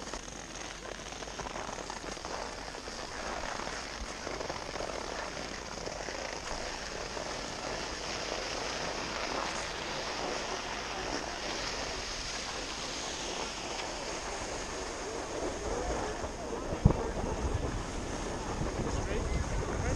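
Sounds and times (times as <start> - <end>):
skis sliding on snow: 0.0 - 19.9
wind buffeting microphone: 6.4 - 19.9.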